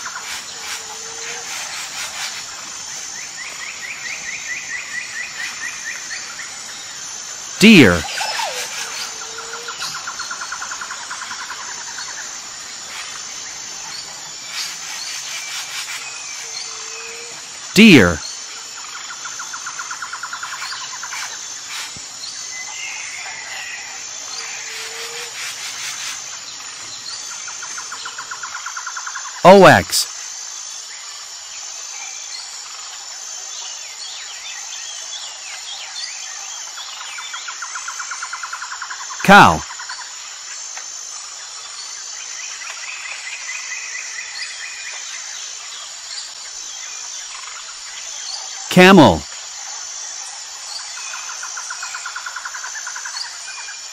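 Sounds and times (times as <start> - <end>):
high insect whine: 0.0 - 29.4.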